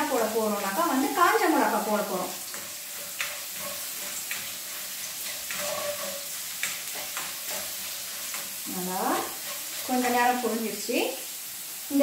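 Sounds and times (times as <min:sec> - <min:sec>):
oil sizzling in a wok: 0:00.0 - 0:12.0
spatula clicks and scrapes: 0:02.5 - 0:08.6.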